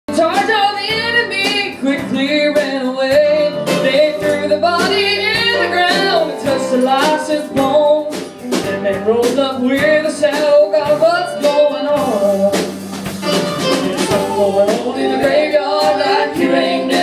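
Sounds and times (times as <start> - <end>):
person singing: 0.1 - 12.7, 13.6 - 17.0
band playing country gospel: 0.1 - 17.0.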